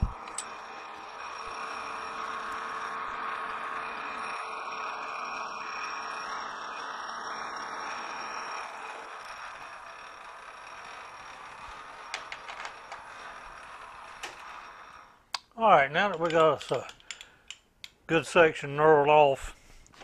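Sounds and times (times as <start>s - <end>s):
metal lathe whirring: 0.0s - 15.4s, 16.0s - 18.0s.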